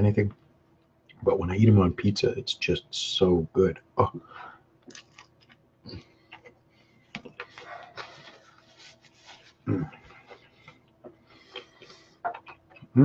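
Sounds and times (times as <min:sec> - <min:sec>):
person chewing with mouth clicks: 0:04.8 - 0:08.4, 0:09.6 - 0:13.0
low grunt: 0:09.6 - 0:10.0.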